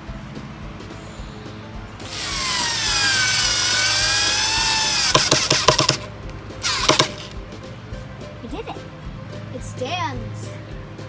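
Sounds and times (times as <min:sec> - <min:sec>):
cordless drill whining: 0:02.0 - 0:06.0, 0:06.6 - 0:07.4.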